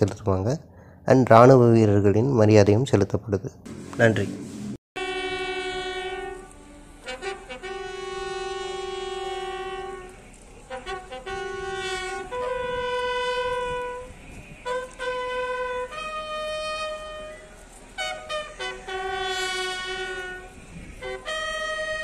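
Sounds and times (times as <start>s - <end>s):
bugle call: 5.0s - 22.0s.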